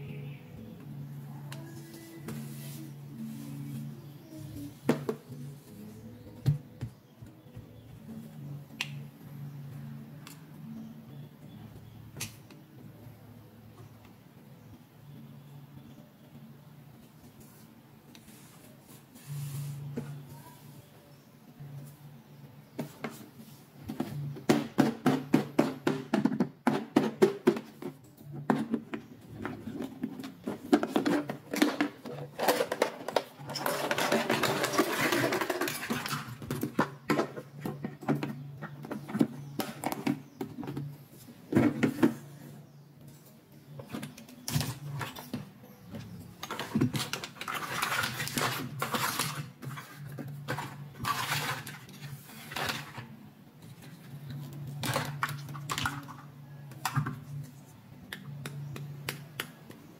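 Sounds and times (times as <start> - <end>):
plastic toys clattering and clicking: 24.0 - 40.9, 46.3 - 57.3.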